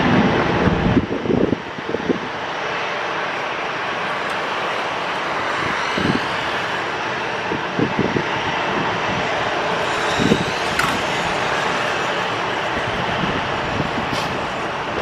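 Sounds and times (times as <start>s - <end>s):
distant jet engine: 0.0s - 15.0s
wind buffeting microphone: 0.0s - 15.0s.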